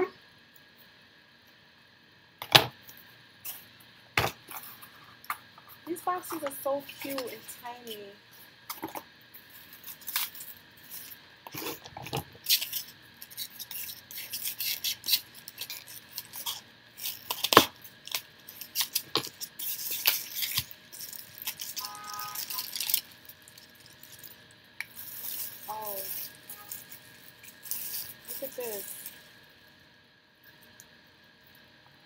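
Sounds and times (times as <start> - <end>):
paper rustling and crinkling: 11.0 - 23.2.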